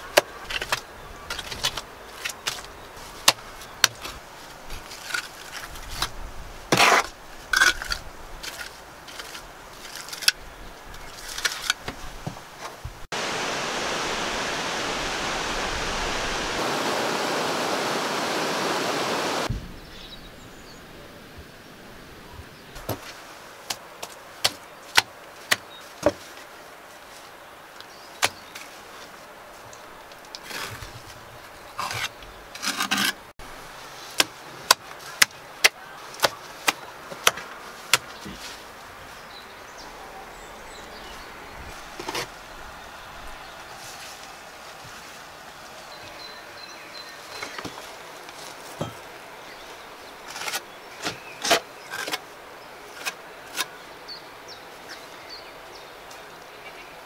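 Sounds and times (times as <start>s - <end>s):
trowel scraping mortar: 6.7s - 10.3s, 31.8s - 33.2s
steady rushing noise: 13.1s - 19.6s.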